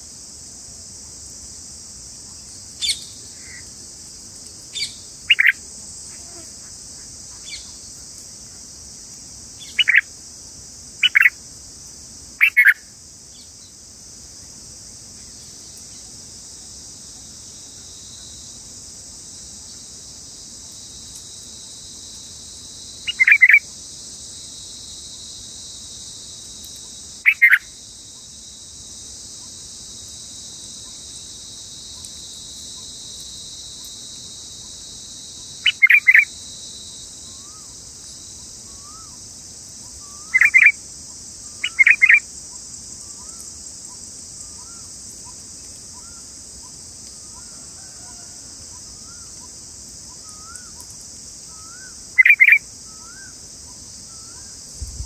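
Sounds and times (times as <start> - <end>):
high-pitched insect drone: 0.8 - 55.0
bird chirps: 12.4 - 12.8, 27.3 - 27.7, 41.6 - 42.2, 51.6 - 53.2.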